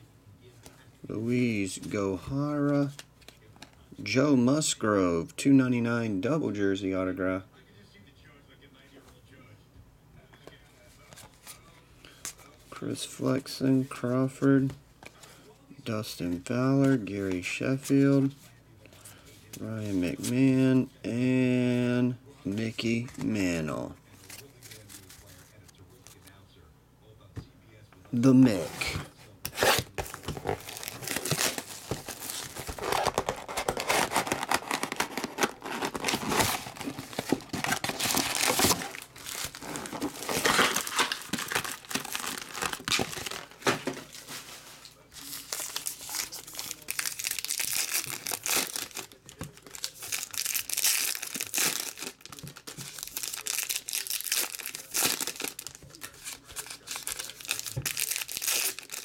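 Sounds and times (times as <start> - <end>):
foil wrappers tearing and crinkling: 29.5 - 59.0.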